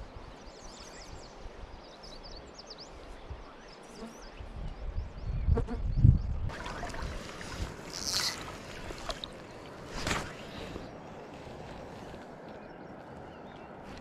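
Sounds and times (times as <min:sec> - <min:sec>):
steady outdoor hiss: 0:00.0 - 0:14.0
water splash: 0:06.5 - 0:10.5
water sloshing: 0:06.5 - 0:12.4.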